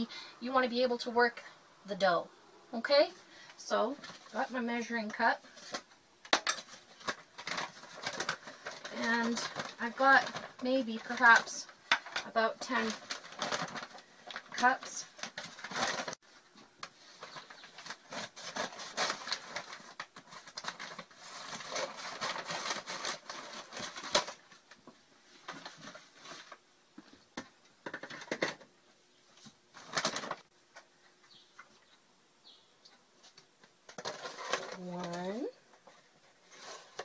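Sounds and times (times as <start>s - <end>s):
flour bag rustling: 3.8s - 26.6s.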